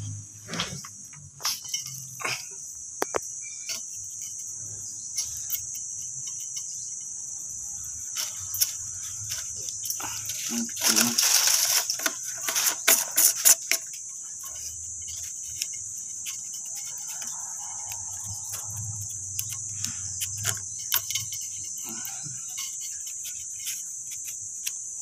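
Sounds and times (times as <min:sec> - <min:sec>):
insect trill: 0:00.0 - 0:25.0.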